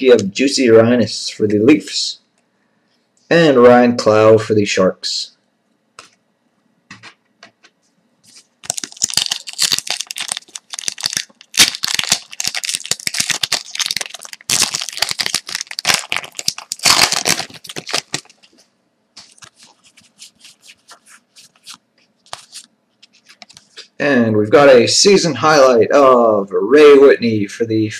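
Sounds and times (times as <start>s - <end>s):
wrapper tearing and crinkling: 8.6s - 18.5s
cards sliding and ticking: 19.2s - 23.8s.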